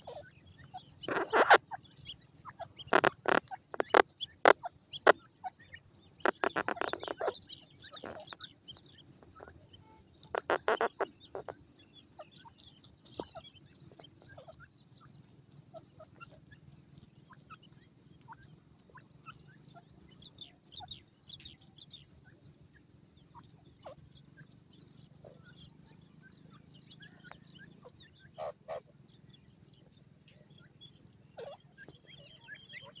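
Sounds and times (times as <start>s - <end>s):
louder lower bird calls: 0.0s - 11.5s
chicks chirping and peeping: 0.0s - 33.0s.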